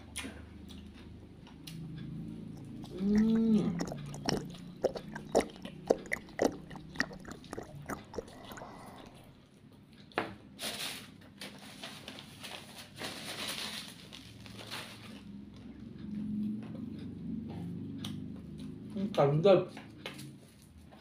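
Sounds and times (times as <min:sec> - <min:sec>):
person chewing and crunching: 0:02.4 - 0:09.4.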